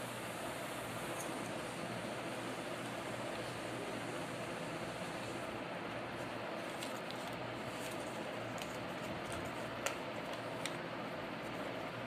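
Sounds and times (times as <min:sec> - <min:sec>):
paper crackling: 0:06.1 - 0:11.8.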